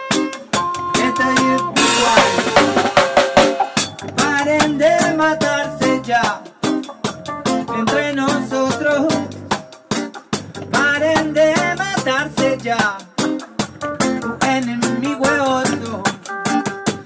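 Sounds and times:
drum kit rimshots: 0:00.0 - 0:17.0
reggae band playing: 0:00.0 - 0:17.0.

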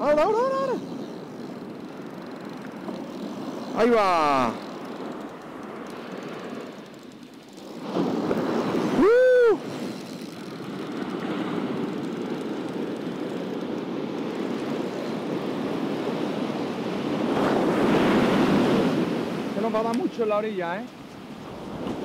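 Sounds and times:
fishing reel line running: 0:00.0 - 0:22.0
surf rushing: 0:07.5 - 0:22.0
person shouting: 0:09.0 - 0:09.6.

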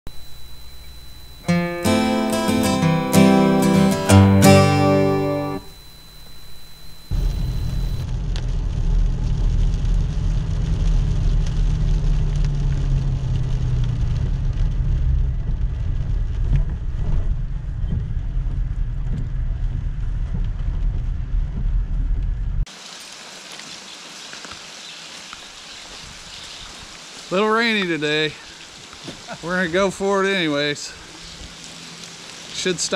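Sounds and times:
rain on glass: 0:06.9 - 0:16.6, 0:22.7 - 0:32.9
road and engine rumble: 0:07.2 - 0:22.6.

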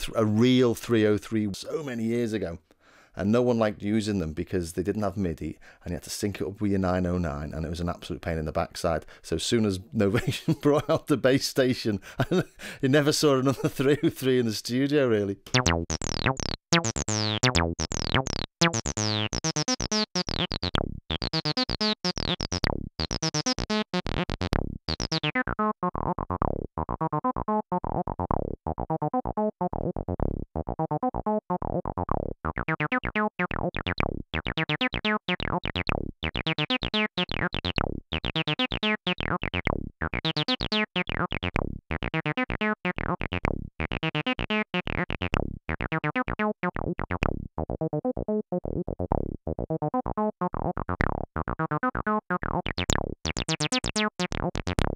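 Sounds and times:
synthesizer acid bassline: 0:15.5 - 0:54.9.

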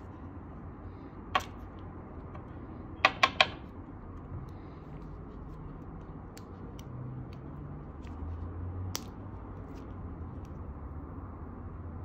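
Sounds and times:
sharp clicks of small parts: 0:08.8 - 0:10.6.

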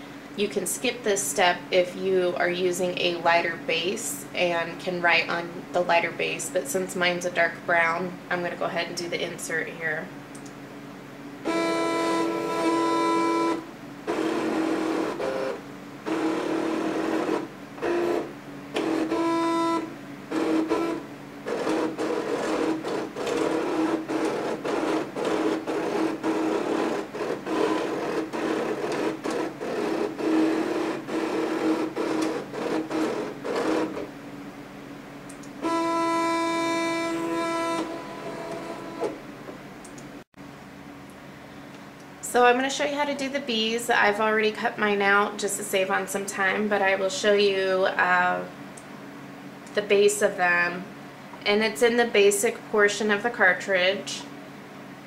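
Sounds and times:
cutting machine motors whining: 0:11.4 - 0:34.1, 0:35.3 - 0:39.2.

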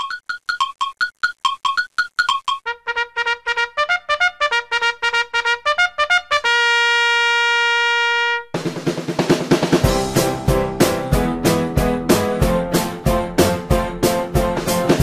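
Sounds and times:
brass-like staccato lead: 0:02.6 - 0:15.0
band track with steady beat: 0:08.6 - 0:15.0.

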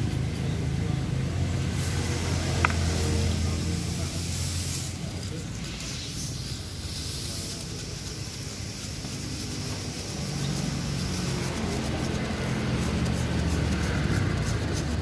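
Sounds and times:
wire brush scrubbing metal: 0:01.7 - 0:15.0
engine humming: 0:09.0 - 0:15.0.

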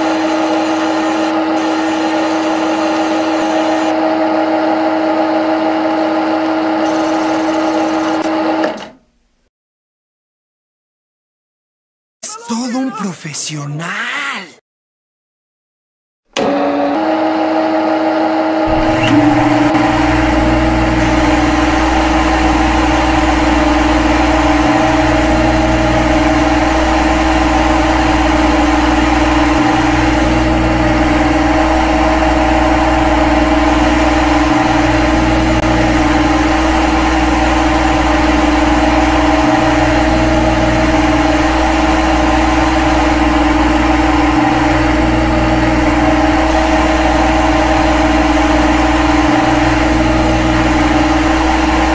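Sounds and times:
lathe spindle humming: 0:18.6 - 0:51.9.

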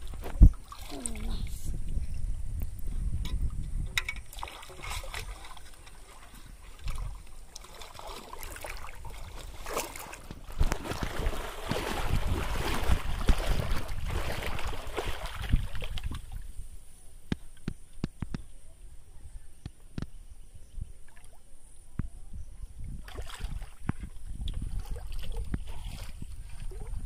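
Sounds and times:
water sloshing from wading: 0:00.0 - 0:02.2, 0:03.2 - 0:16.8, 0:22.9 - 0:27.0
wind on microphone: 0:00.0 - 0:07.5, 0:08.4 - 0:27.0.

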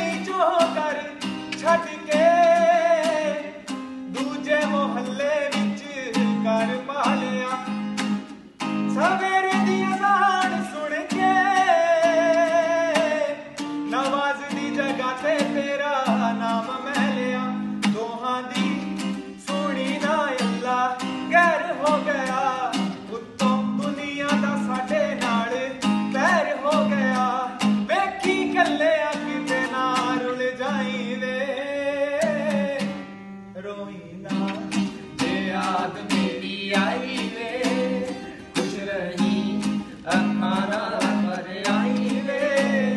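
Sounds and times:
acoustic guitar strumming: 0:00.0 - 0:42.9
man singing: 0:00.0 - 0:42.9.

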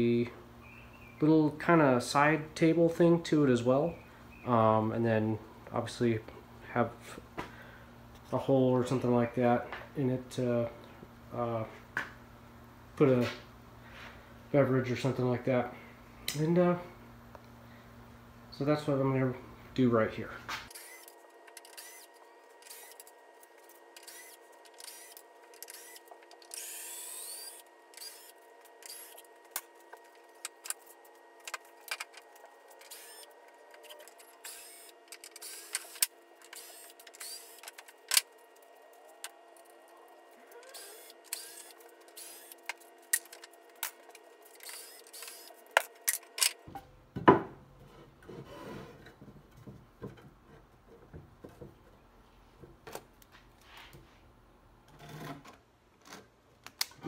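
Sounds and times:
cordless drill whirring: 0:20.7 - 0:23.1, 0:24.0 - 0:29.3, 0:32.8 - 0:37.7, 0:40.6 - 0:42.8, 0:44.5 - 0:45.6.

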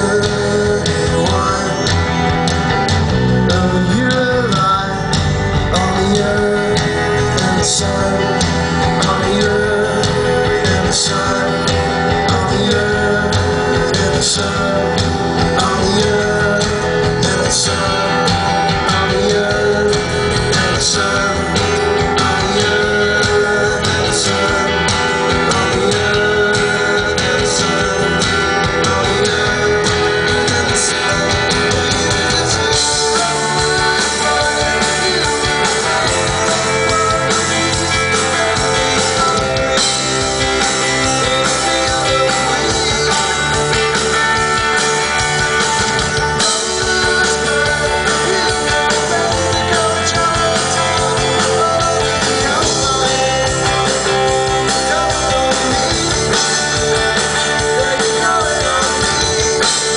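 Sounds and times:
live rock band playing: 0:00.0 - 0:59.9.

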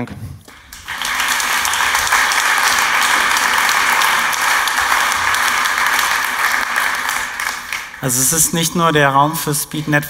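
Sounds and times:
audience applauding: 0:00.5 - 0:09.4.

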